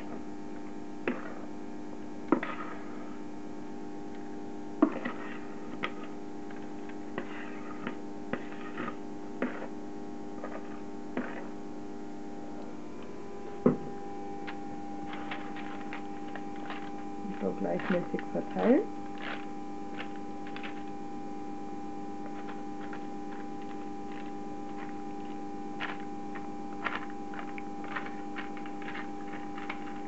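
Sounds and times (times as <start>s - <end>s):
steady hum: 0.0s - 30.0s
spatula scraping batter in bowl: 4.8s - 11.6s, 15.1s - 20.9s.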